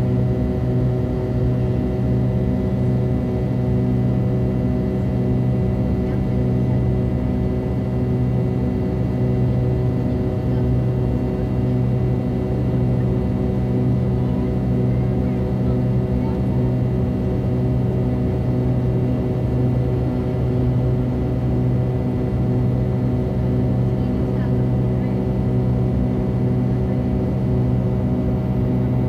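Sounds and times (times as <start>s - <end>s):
jet engine droning hum: 0.0s - 29.0s.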